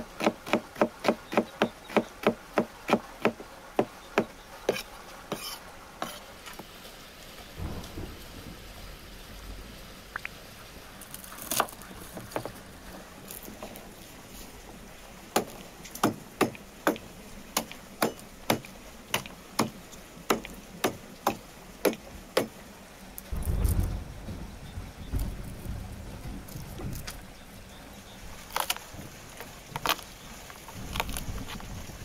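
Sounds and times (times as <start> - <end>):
knife chopping on wooden board: 0.2 - 6.2, 17.6 - 22.5
low rumble: 23.3 - 28.0.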